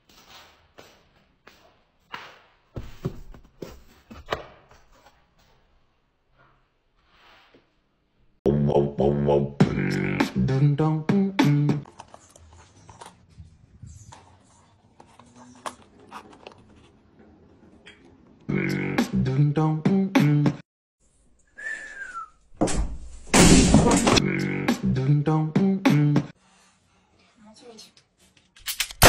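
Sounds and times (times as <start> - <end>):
beatbox vocal music: 8.5 - 11.8, 18.4 - 20.6, 24.2 - 26.3
short falling whistle: 21.6 - 22.4.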